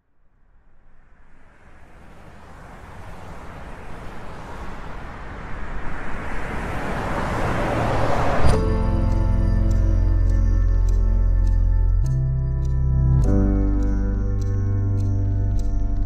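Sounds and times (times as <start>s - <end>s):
rushing noise: 0.3s - 10.7s.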